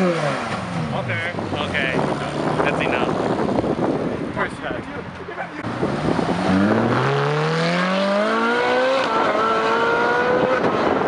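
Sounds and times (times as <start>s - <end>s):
sports car accelerating hard: 5.6s - 11.0s.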